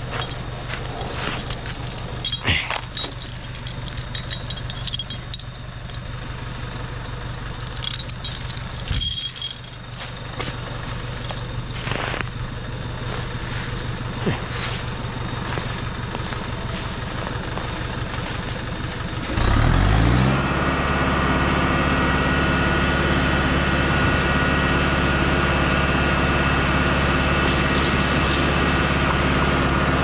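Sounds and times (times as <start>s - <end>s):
metallic clanks and rattles: 0.0s - 6.2s, 7.6s - 12.4s
diesel engine running: 0.0s - 30.0s.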